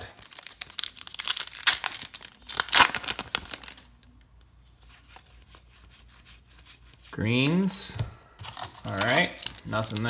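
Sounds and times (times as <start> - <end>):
foil wrapper crinkling and tearing: 0.0 - 4.1, 8.5 - 10.0
cards rustling and ticking: 8.4 - 10.0.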